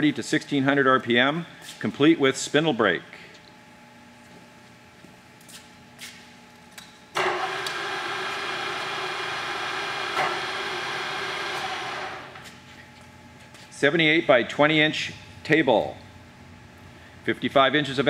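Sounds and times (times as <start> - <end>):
milling machine motor humming: 7.2 - 12.4.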